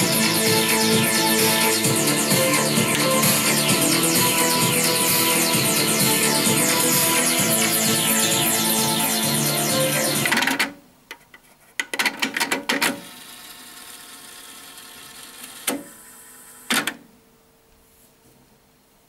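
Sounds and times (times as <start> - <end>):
music from cassette tape: 0.0 - 10.7
tape winding whir: 0.0 - 10.8, 12.8 - 17.0.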